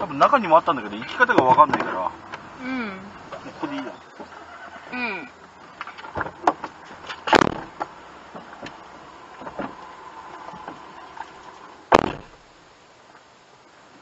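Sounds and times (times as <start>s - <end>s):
van doors shutting: 5.8s - 12.4s.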